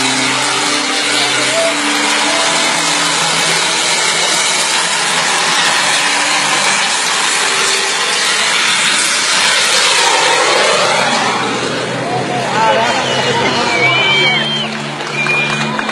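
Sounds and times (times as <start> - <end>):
model jet engine hissing: 0.0 - 12.0.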